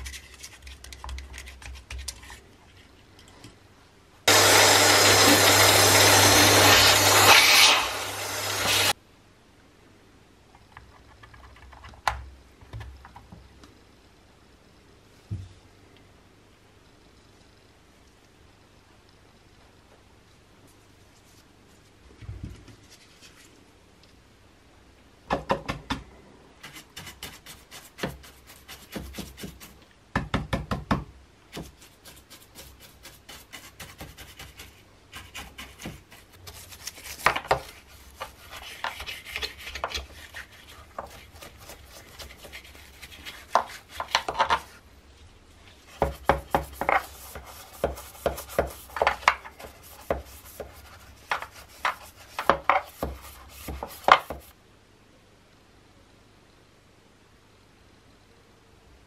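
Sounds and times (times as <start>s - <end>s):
brush knocking on plastic: 27.9s - 44.7s, 45.9s - 54.5s
paintbrush scraping plastic: 31.6s - 44.8s, 45.7s - 54.5s.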